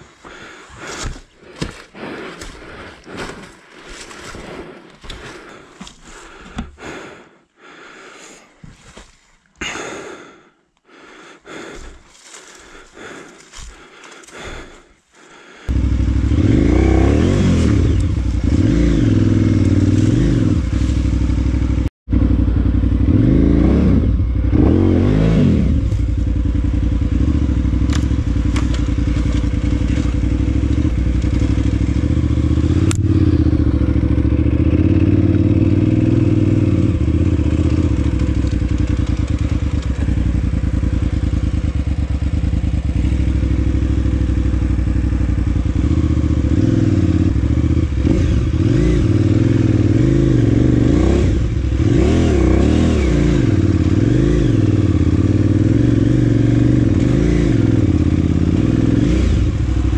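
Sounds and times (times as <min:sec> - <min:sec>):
motorcycle engine revving: 0:00.3 - 0:07.1, 0:15.4 - 0:59.9
bike knocking and clattering: 0:27.7 - 0:31.9.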